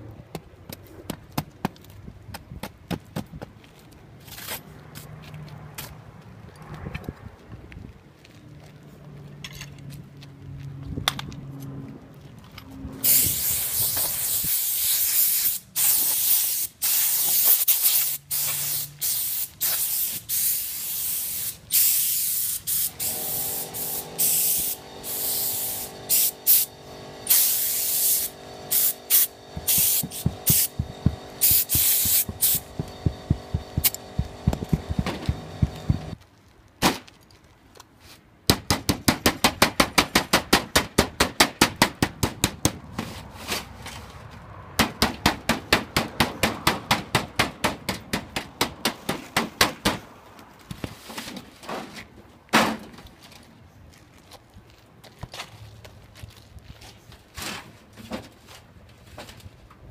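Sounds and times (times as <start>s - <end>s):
compressed air hissing: 13.0s - 36.2s
steady hum: 23.0s - 36.2s.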